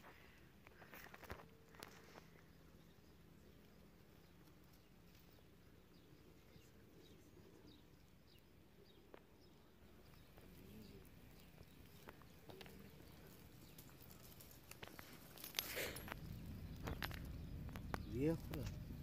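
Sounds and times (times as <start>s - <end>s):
low hum: 9.6s - 19.0s
faint clicks: 10.1s - 18.8s.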